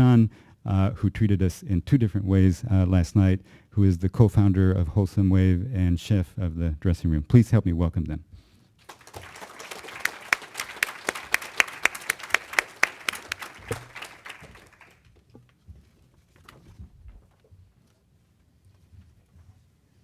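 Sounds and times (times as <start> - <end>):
audience applauding: 8.8 - 15.2
hands clapping close to microphone: 8.8 - 15.6.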